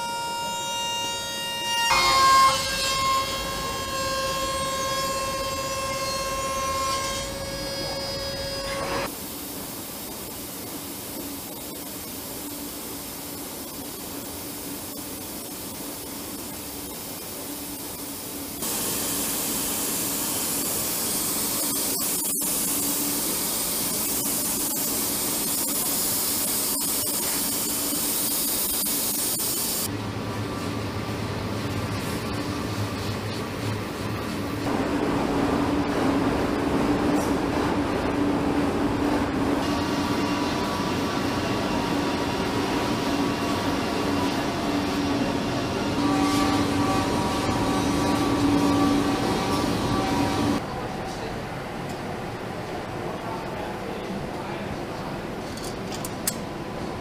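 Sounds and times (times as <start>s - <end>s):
quieter steady machine noise: 2.4s - 57.0s
steady hiss: 9.0s - 29.9s
milling machine whine: 39.6s - 50.6s.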